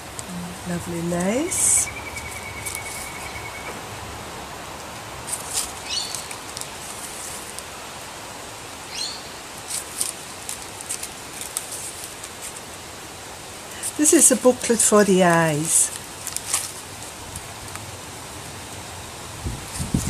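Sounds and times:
wind hiss on microphone: 0.0s - 20.0s
paper pages rustling: 2.1s - 3.3s, 5.2s - 7.8s, 9.6s - 12.8s, 13.8s - 17.9s.

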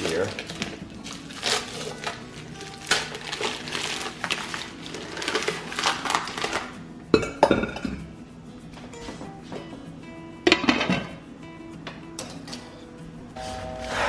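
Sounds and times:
plastic bag crinkling: 0.0s - 6.7s
faint background music: 0.0s - 14.0s.

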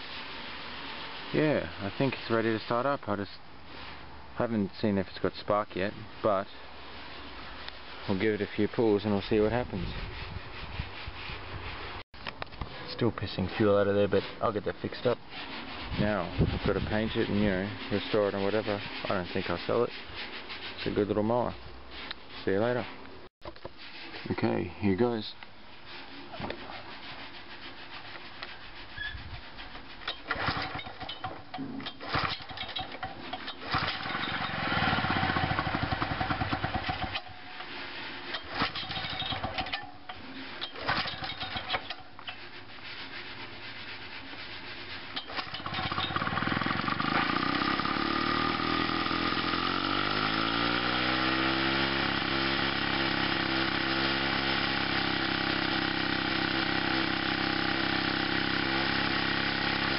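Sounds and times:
recoil starter pulls: 30.1s - 42.4s, 45.2s - 59.9s
lawn mower engine running: 30.2s - 31.4s, 32.0s - 37.4s, 38.2s - 39.9s, 40.6s - 42.0s, 45.2s - 59.9s.

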